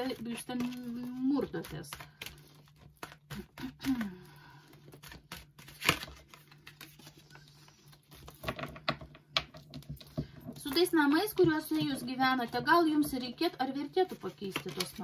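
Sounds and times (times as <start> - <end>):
cards being shuffled: 0.0 - 8.9, 14.0 - 15.0.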